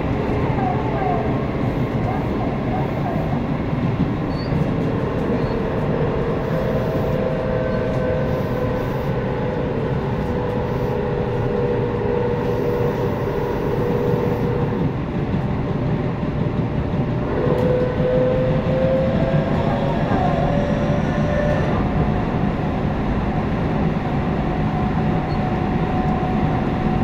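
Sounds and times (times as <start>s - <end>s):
train rail and running noise: 0.0s - 27.0s
electric train motor whine: 5.2s - 14.8s.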